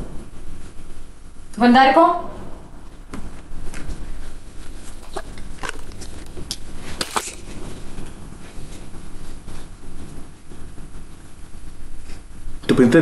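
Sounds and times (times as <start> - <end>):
rustling: 4.7 - 7.9.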